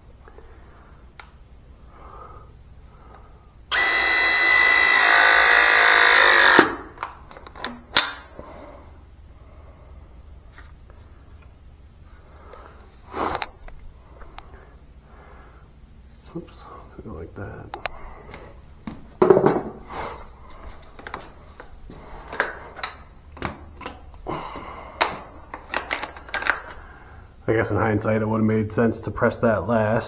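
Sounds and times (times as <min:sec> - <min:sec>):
hydraulic press tool motor whine: 0:03.7 - 0:07.1.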